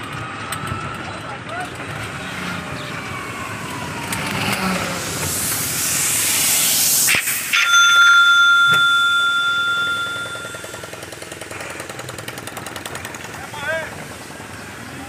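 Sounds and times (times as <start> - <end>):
wind and road noise: 0.0 - 15.0
bell ringing: 7.2 - 11.2.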